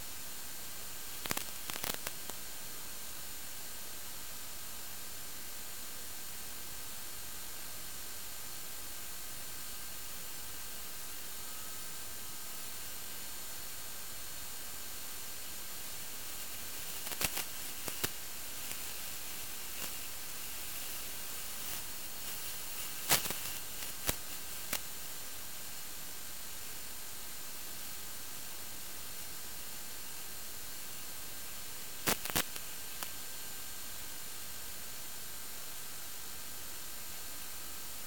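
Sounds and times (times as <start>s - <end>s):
static hiss: 0.0s - 38.0s
sharp crackles: 1.1s - 2.4s, 16.3s - 24.8s, 32.0s - 33.1s.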